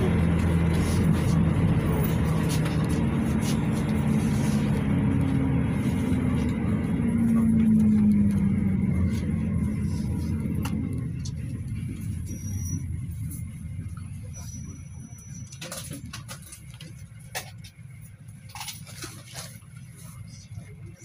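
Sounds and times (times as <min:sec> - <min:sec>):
minibus engine running: 0:00.0 - 0:21.0
tyre and road noise: 0:00.0 - 0:21.0.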